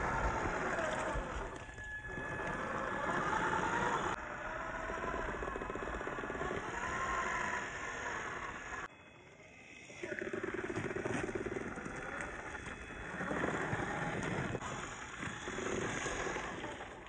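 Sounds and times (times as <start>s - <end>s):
electric motor whining: 0.0s - 17.0s.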